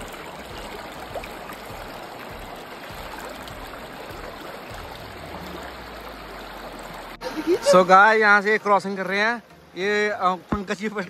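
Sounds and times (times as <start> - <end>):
river flowing over stones: 0.0 - 11.0.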